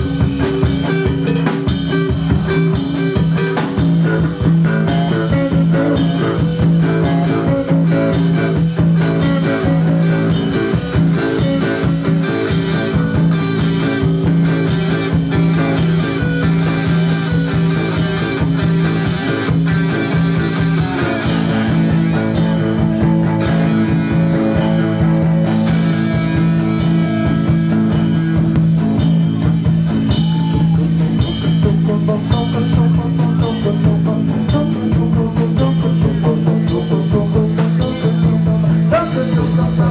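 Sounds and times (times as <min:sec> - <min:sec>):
drum kit: 0:00.0 - 0:39.9
electric guitars: 0:00.0 - 0:39.9.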